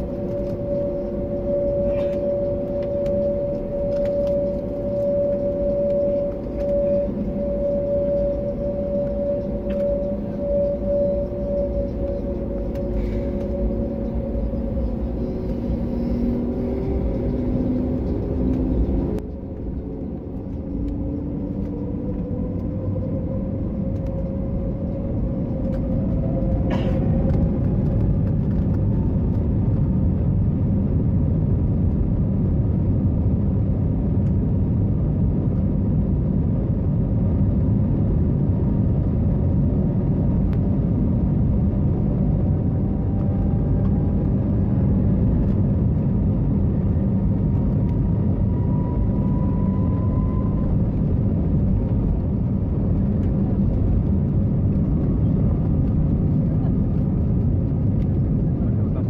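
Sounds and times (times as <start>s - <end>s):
engine and rolling gear rumble: 0.0s - 59.0s
faint gliding engine tones: 0.0s - 59.0s.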